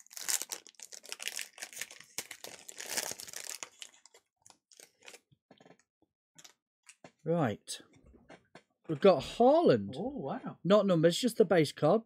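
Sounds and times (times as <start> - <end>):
foil wrapper crinkling and tearing: 0.0 - 5.2.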